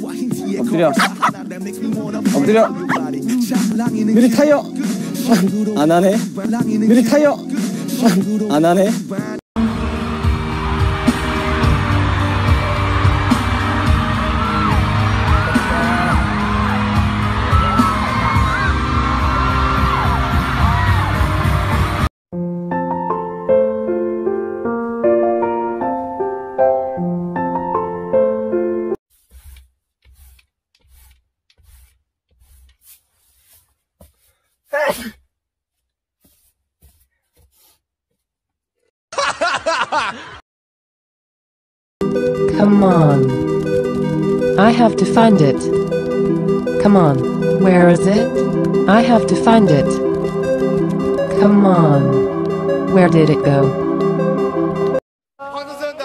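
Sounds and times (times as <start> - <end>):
audience screaming and cheering: 9.9 - 22.0
person sneezing: 34.7 - 35.2
burst of laughter: 39.1 - 40.4.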